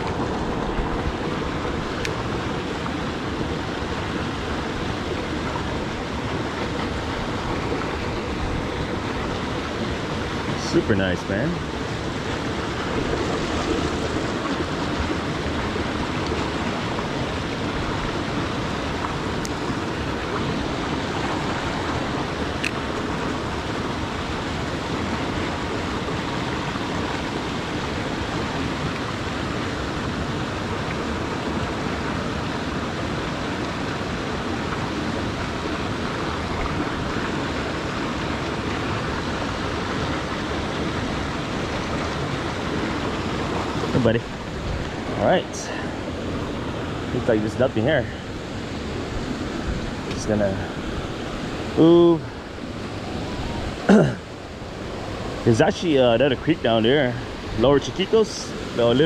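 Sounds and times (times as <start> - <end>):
creek water rushing: 0.0 - 59.0.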